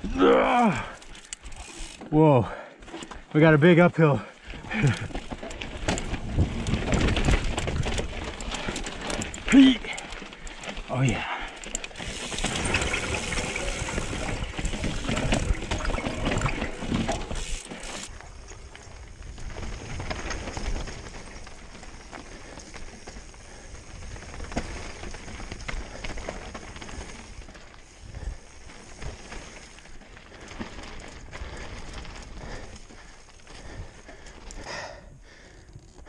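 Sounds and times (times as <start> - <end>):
bike rattles: 0.0 - 36.0
bike tyres rolling over rocks: 0.0 - 36.0
wind on camera: 4.8 - 8.5.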